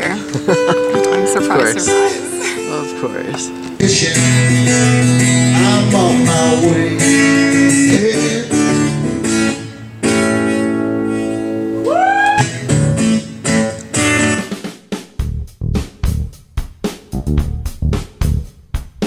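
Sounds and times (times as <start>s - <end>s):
acoustic guitar strumming: 0.0s - 14.8s.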